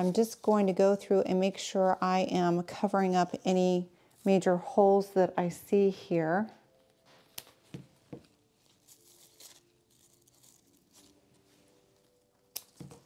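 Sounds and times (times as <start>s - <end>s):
rustling of leaves and stems: 0.0s - 0.8s, 8.5s - 13.0s
shears snipping stems: 12.5s - 13.0s.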